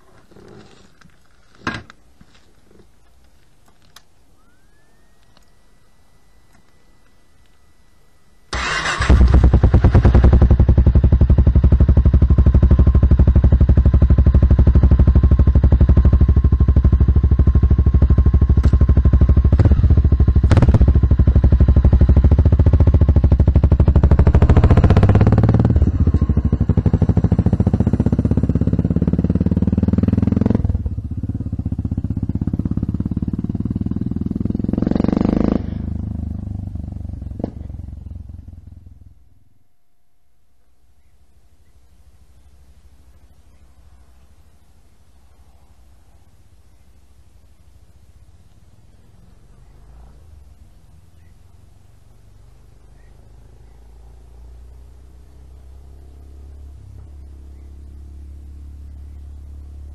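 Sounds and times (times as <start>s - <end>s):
motorcycle engine idling and revving: 8.5s - 39.6s, 47.0s - 59.9s.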